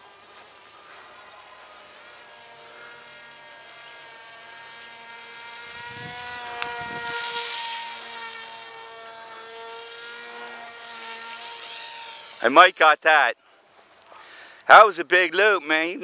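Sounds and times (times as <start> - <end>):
model plane propeller whining: 0.0 - 16.0
wind rumble on microphone: 5.7 - 7.2.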